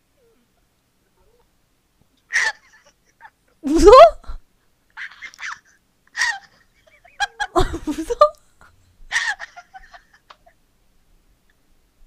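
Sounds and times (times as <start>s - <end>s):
woman laughing: 2.3s - 4.4s, 5.0s - 8.5s, 9.1s - 10.6s.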